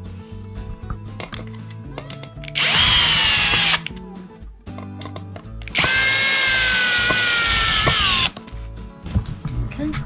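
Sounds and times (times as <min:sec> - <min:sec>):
cordless drill driving screws: 0:02.6 - 0:03.9, 0:05.7 - 0:08.4.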